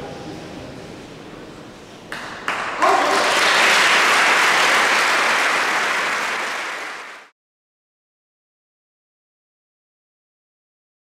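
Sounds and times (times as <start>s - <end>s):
crowd applauding: 2.1s - 7.3s.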